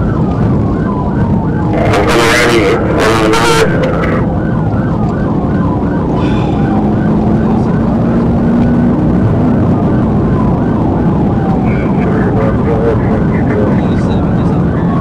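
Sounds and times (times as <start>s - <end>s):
car engine and tyre noise: 0.0s - 15.0s
police siren yelping: 0.0s - 15.0s.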